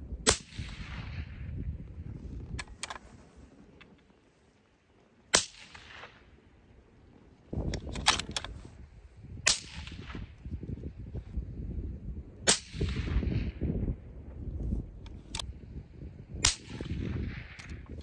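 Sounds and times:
suppressed rifle shots: 0.2s - 1.5s, 5.3s - 6.3s, 9.4s - 10.3s, 12.4s - 13.6s, 16.4s - 17.8s
rifle bolt metallic clicks: 2.6s - 3.0s, 7.6s - 8.7s.

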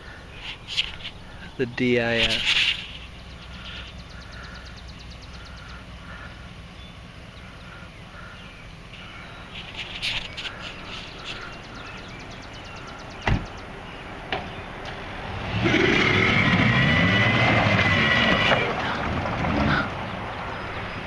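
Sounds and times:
insects trilling: 0.0s - 13.8s
birds calling: 0.0s - 21.0s.

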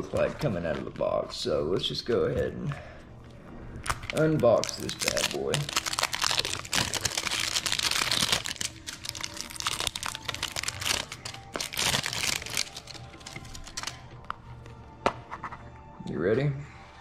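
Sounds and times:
packaging crinkling and rustling: 3.8s - 14.3s.

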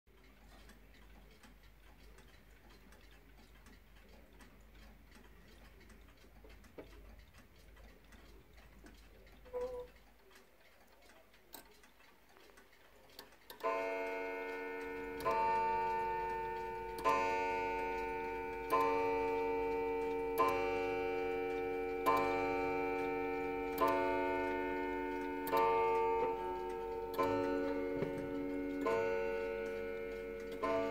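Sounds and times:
clock ticking faintly: 0.1s - 30.9s
clock striking a deep gong: 13.6s - 30.9s.

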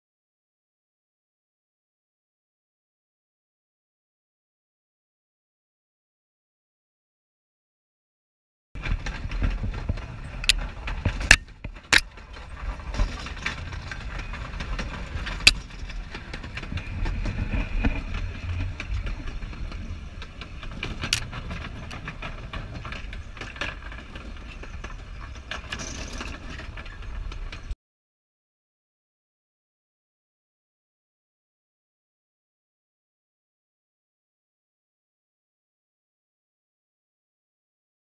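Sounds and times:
rumble of steel wheels on rails: 8.8s - 27.8s
wheels clicking and clanking: 8.8s - 27.8s.

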